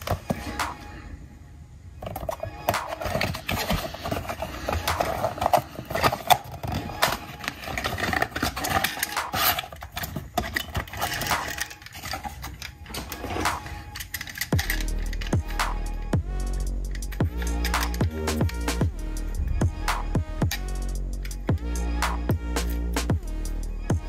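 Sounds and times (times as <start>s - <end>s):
handling packaging and toy cars: 0.0s - 1.1s, 1.9s - 16.1s, 16.8s - 19.4s.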